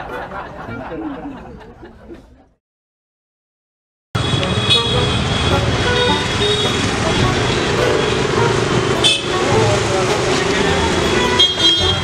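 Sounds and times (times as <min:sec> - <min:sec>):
busy street traffic: 0:00.0 - 0:02.5, 0:04.2 - 0:12.0
vehicle horn toots: 0:04.2 - 0:12.0.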